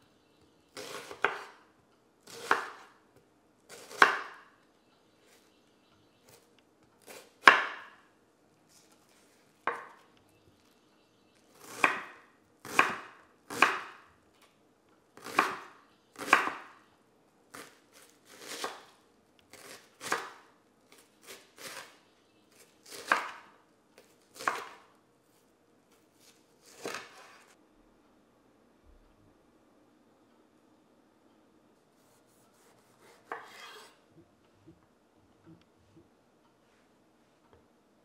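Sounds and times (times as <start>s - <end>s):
knife chopping onion on board: 0.8s - 1.6s, 2.2s - 2.9s, 3.7s - 4.5s, 7.0s - 8.0s, 9.7s - 10.0s, 11.6s - 14.0s, 15.2s - 16.8s, 17.5s - 24.9s, 26.6s - 27.4s, 32.3s - 33.9s.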